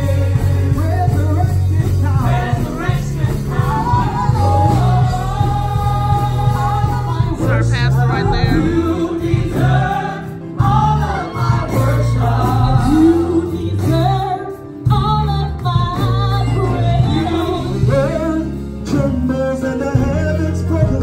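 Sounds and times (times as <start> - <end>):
steady bass line: 0.0 - 14.3
gospel song sung by several voices: 0.0 - 21.0.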